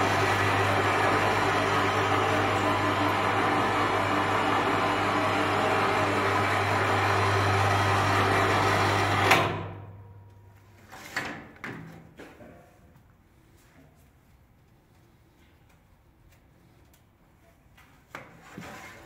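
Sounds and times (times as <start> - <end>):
electric motor and chain drive humming: 0.0 - 9.6.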